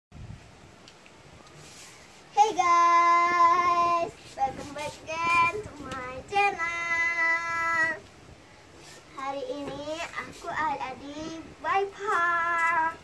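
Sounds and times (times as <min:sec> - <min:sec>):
girl singing: 0:02.3 - 0:08.1, 0:09.0 - 0:13.0.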